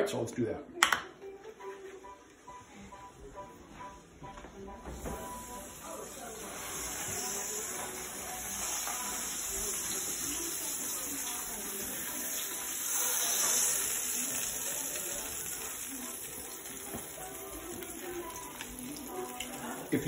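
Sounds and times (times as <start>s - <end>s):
roast sizzling in metal pan: 4.8s - 20.0s.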